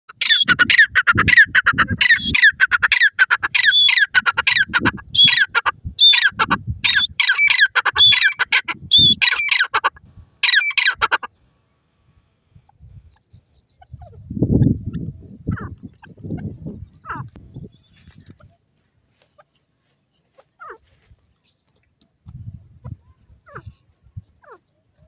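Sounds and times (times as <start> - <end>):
francolin calling: 0.1 - 11.3.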